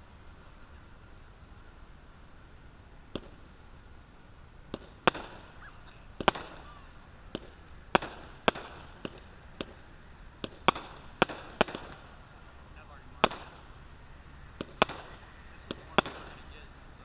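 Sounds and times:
fireworks shots with echo: 3.1 - 3.6, 4.6 - 16.7.

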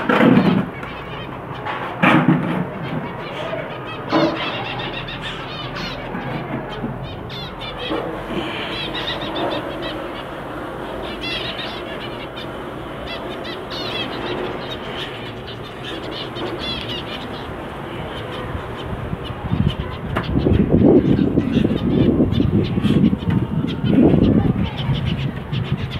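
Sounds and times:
steady background hiss: 2.9 - 19.5
finches high chirps: 3.1 - 25.9.

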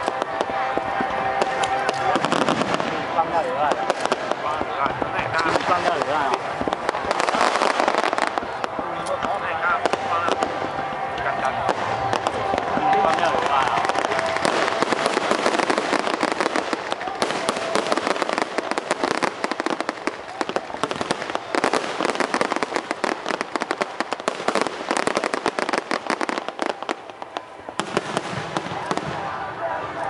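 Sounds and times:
fireworks crackling: 0.0 - 30.0.

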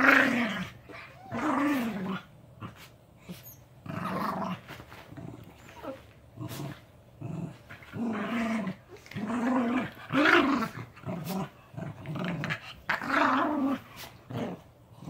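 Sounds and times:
dogs growling: 3.8 - 15.0.

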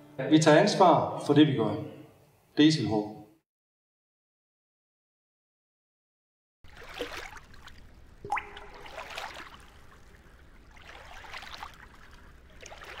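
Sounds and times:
water trickling and gurgling: 6.6 - 13.0
sharp plop: 6.8 - 10.0.

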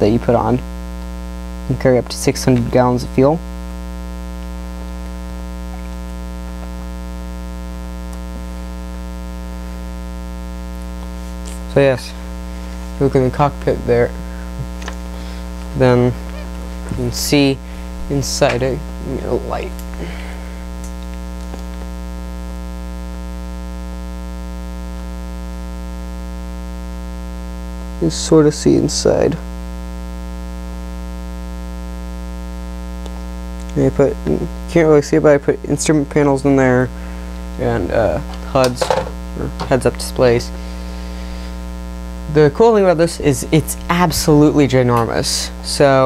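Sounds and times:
electrical mains hum: 0.0 - 46.0.

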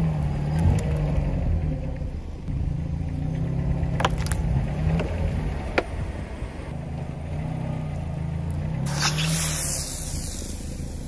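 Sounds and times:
car engine humming: 0.0 - 11.0.

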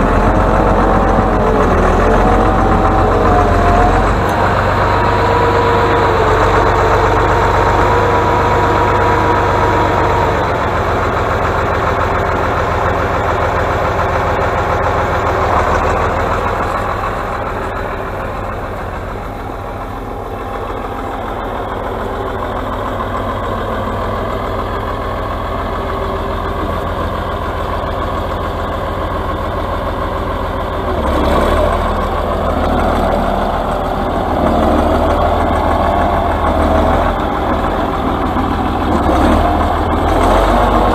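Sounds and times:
high whine: 0.0 - 11.2
diesel engine under load: 0.0 - 40.9.

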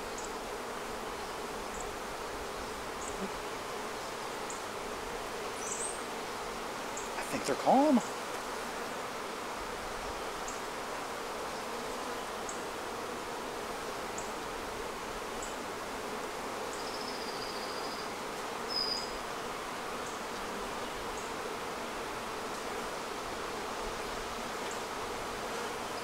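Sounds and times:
honeybees humming: 0.1 - 17.3.

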